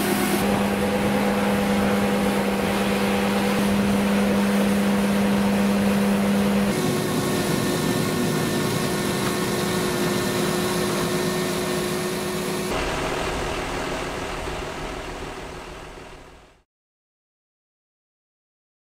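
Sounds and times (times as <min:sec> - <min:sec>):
tractor diesel engine idling: 0:00.0 - 0:16.6.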